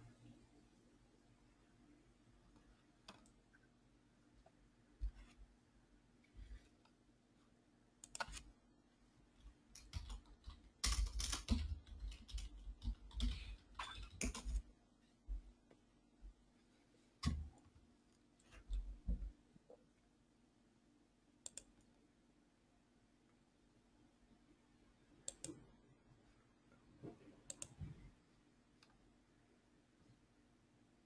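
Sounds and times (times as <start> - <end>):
typing on keyboard: 9.7 - 14.7.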